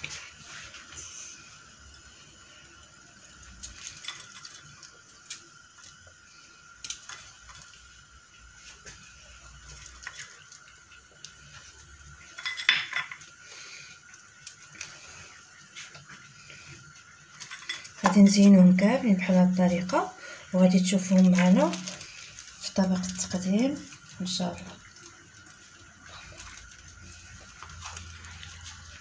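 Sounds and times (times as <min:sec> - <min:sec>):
utensils clinking on metal tray: 0:12.2 - 0:13.3, 0:17.4 - 0:18.6
dishes clattering: 0:12.3 - 0:13.2.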